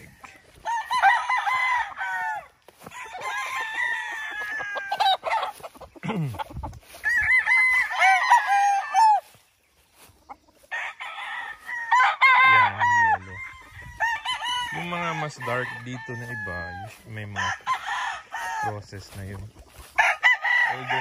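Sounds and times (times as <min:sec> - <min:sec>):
roosters crowing: 0:00.0 - 0:21.0.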